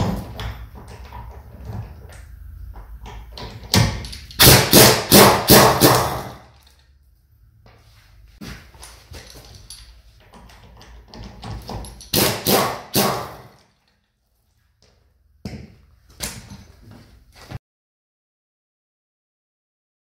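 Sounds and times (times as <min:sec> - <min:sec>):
tool and nuts clattering: 0:00.0 - 0:07.0, 0:08.5 - 0:14.2
impact wrench hammering: 0:03.1 - 0:06.6, 0:11.1 - 0:13.6.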